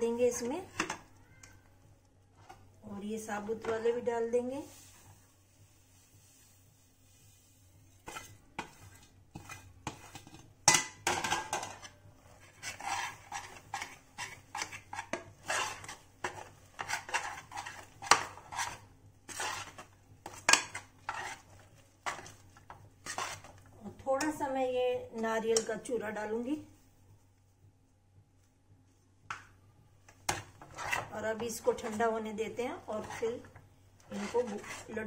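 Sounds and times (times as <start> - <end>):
metal spoon scraping a saucepan: 8.0 - 23.6, 30.3 - 32.0, 32.8 - 35.0.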